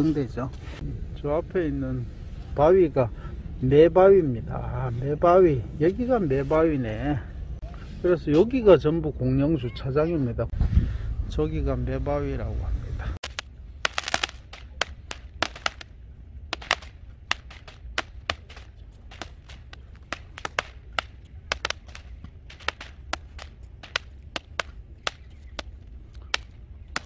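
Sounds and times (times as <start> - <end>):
fireworks cracking and popping: 13.2 - 15.9, 16.5 - 27.0.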